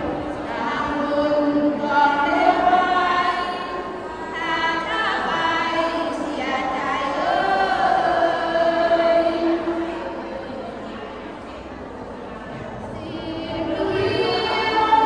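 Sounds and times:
women chanting in unison: 0.0s - 10.2s, 12.9s - 15.0s
lead voice on a microphone: 12.5s - 15.0s.

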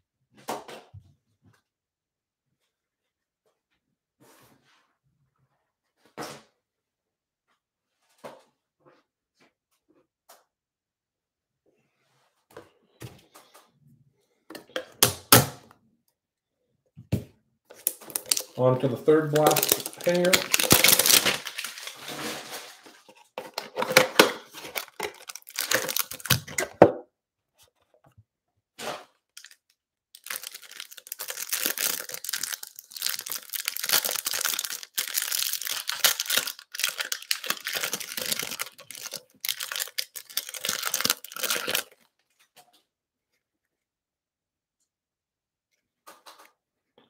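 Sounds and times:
pack wrappers crinkling: 17.7s - 26.8s, 29.4s - 42.1s
plastic wrapping being torn and crinkled: 17.7s - 26.8s, 29.4s - 42.1s.

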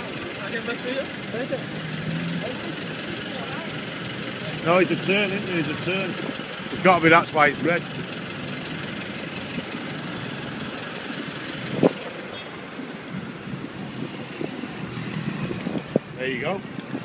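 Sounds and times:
street traffic: 0.0s - 17.0s.

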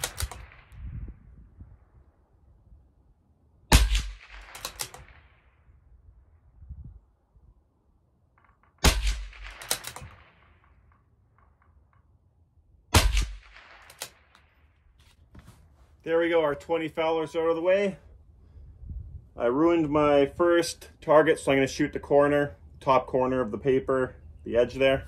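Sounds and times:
rifle bolt clacks: 0.0s - 0.6s, 3.9s - 5.2s, 8.4s - 12.3s, 13.1s - 14.5s
rifle shots: 0.0s - 0.8s, 3.7s - 5.6s, 8.4s - 11.7s, 12.9s - 14.6s.

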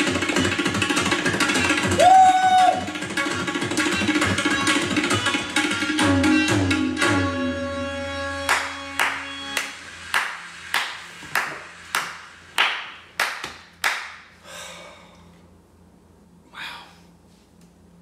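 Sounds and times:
tabla played fast: 0.0s - 7.3s
hand claps: 8.5s - 14.3s.

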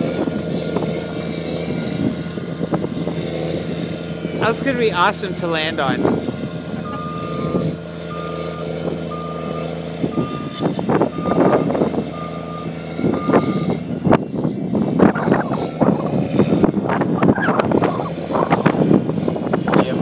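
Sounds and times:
snow groomer engine running: 0.0s - 20.0s
reverse alarm beeping: 6.8s - 13.8s.

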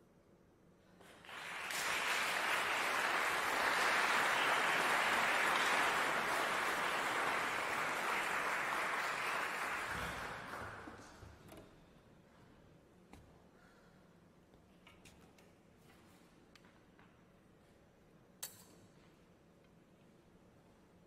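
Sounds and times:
audience applauding: 1.0s - 11.2s.

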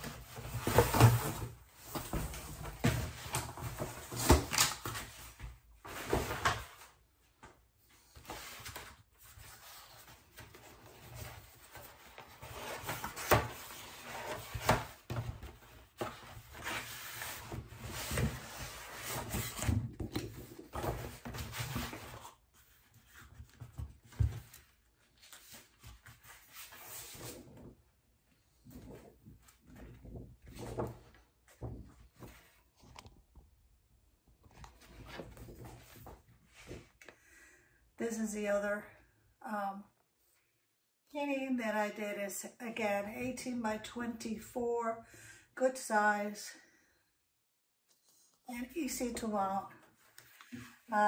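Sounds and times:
cardboard rustling and scraping: 0.0s - 7.0s, 8.0s - 27.8s, 28.4s - 33.1s, 34.5s - 37.0s.

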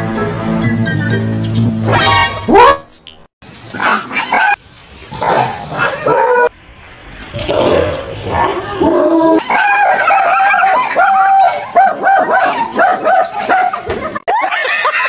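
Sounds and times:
small dog barking and yelping: 2.5s - 3.0s, 3.8s - 4.6s, 9.4s - 13.8s.

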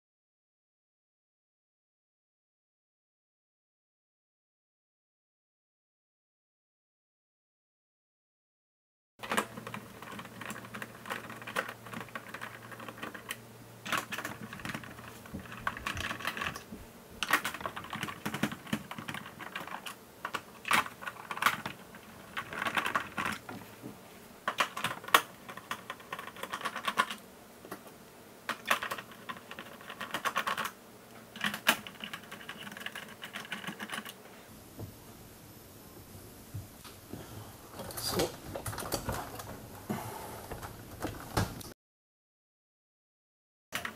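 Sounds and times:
clicking and scraping plastic: 9.2s - 23.7s, 37.7s - 39.8s.

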